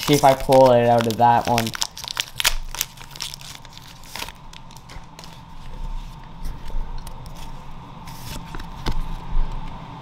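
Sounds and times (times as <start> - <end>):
cards rustling and clicking: 0.0 - 5.8
foil wrapper crinkling: 0.0 - 5.8
faint steady hum: 0.0 - 10.0.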